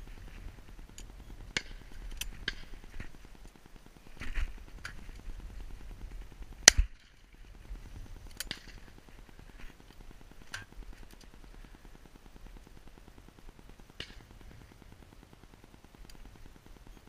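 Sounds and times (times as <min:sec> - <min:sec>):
faint sharp cracks: 0:13.9 - 0:14.8.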